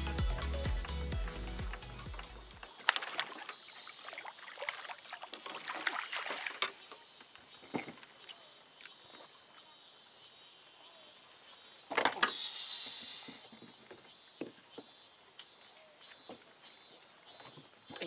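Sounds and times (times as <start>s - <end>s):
water splashing: 1.2s - 7.0s.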